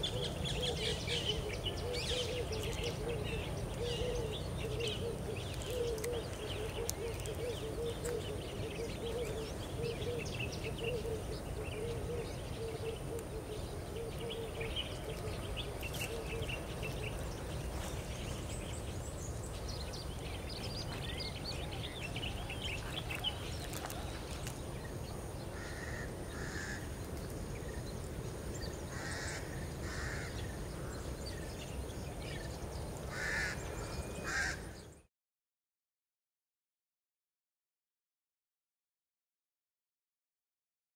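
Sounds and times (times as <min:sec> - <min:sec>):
birds chirping and twittering: 0:00.0 - 0:35.1
harsh caw-like bird calls: 0:25.5 - 0:27.0, 0:28.9 - 0:31.2, 0:33.1 - 0:35.0.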